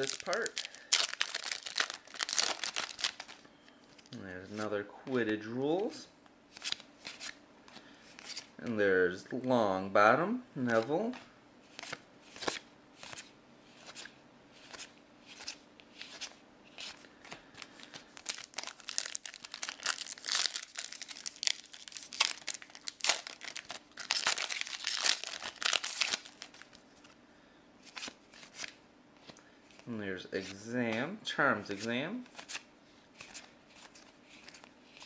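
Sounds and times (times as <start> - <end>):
wrapper crinkling and tearing: 0.0 - 3.4, 17.6 - 26.8.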